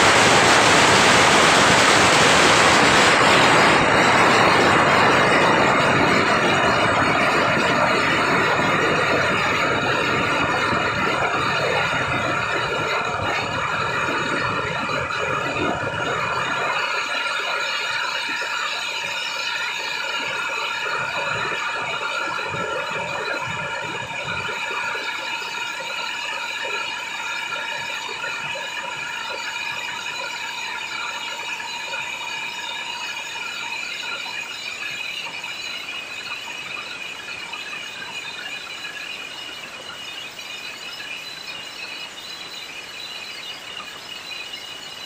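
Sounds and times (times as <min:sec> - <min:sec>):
firecracker bangs: 0:00.0 - 0:07.7
firecrackers crackling: 0:00.0 - 0:39.1
high shrill tone: 0:00.0 - 0:45.0.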